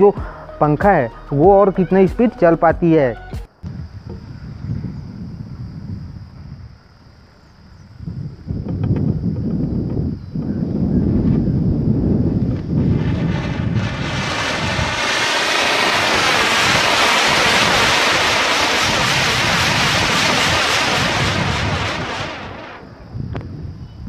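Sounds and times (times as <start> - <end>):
fireworks hissing: 12.4 - 23.2.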